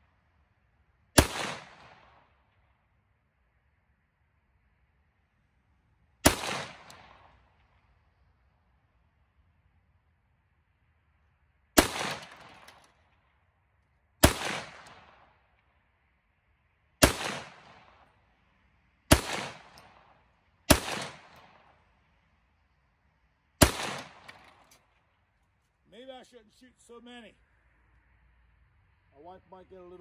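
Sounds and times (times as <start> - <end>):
rifle shots with echo: 1.2 - 2.6, 6.2 - 7.7, 11.8 - 13.0, 14.2 - 15.4, 17.0 - 18.1, 19.1 - 21.8, 23.6 - 24.7.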